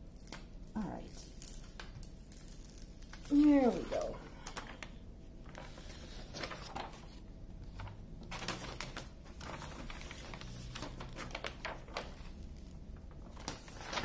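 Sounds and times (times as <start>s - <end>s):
release paper peeling and crackling: 0.0s - 14.0s.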